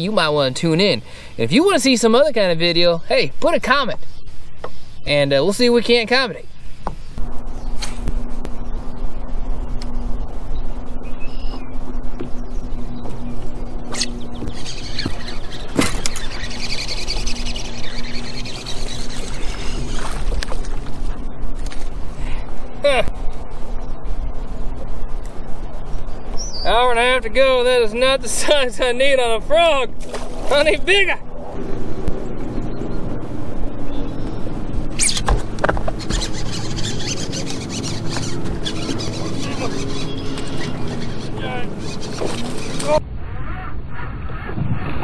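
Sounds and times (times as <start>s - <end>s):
wind rumble on microphone: 0.0s - 45.0s
electric trolling motor humming: 6.5s - 43.0s
fishing reel whirring: 7.8s - 22.4s, 33.7s - 43.0s
short high squeak: 13.9s - 20.1s, 35.0s - 35.4s, 36.0s - 43.0s.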